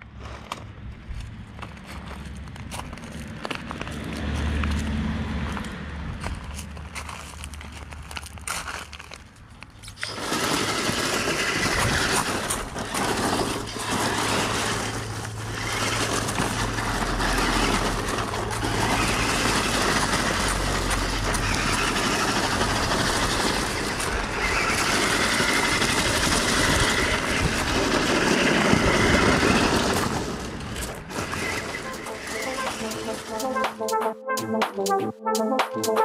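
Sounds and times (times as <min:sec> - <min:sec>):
tyres crunching over gravel: 0:00.1 - 0:33.6
electric motors running: 0:09.9 - 0:33.7.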